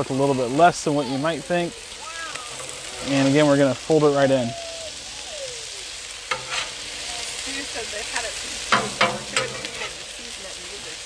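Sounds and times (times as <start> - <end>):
food sizzling on a griddle: 0.0 - 11.0
metal spatula scraping: 2.5 - 3.4, 6.2 - 7.0, 8.6 - 10.2.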